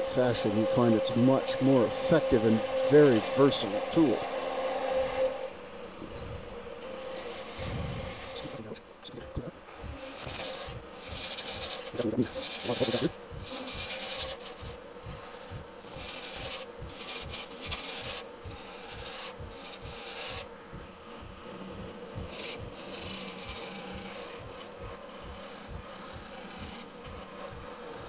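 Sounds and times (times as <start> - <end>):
turning tool rasping wood: 0.0 - 28.0
wood lathe humming: 0.0 - 28.0.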